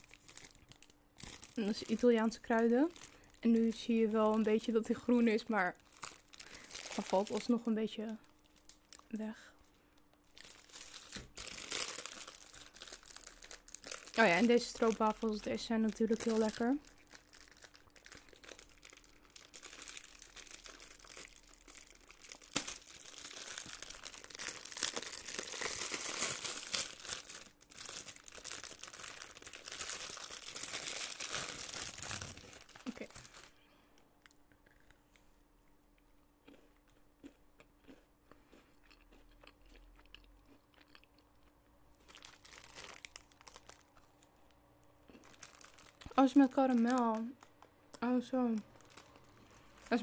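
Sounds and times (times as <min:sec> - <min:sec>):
wrapper crinkling and tearing: 0:00.0 - 0:09.3, 0:10.0 - 0:33.6, 0:42.0 - 0:44.3, 0:45.1 - 0:47.7, 0:48.4 - 0:50.0
faint chewing: 0:34.2 - 0:42.2.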